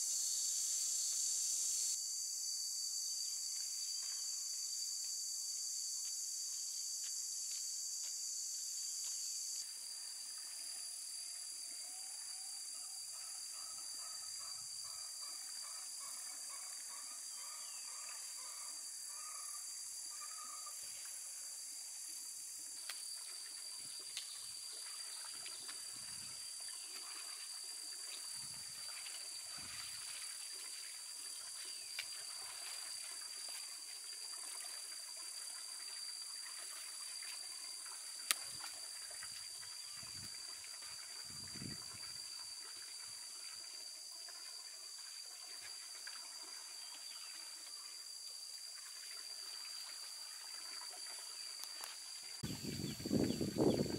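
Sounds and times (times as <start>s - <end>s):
shrill insect drone: 0.0s - 22.4s
faint ticks: 38.2s - 38.7s.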